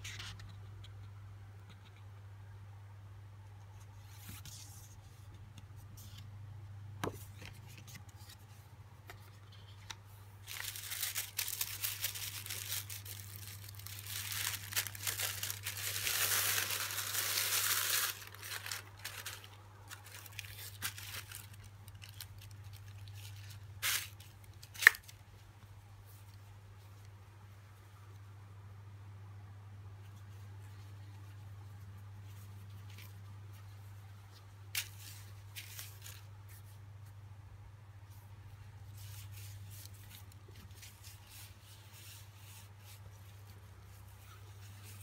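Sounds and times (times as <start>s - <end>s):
tissue paper rustling: 10.4s - 25.0s, 32.3s - 36.8s, 38.8s - 45.0s.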